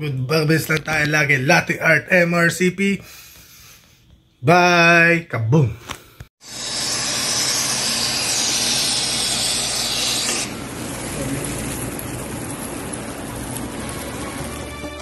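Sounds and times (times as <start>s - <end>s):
bright hiss: 6.4s - 14.9s
coffee beans pouring into grinder: 6.6s - 15.0s.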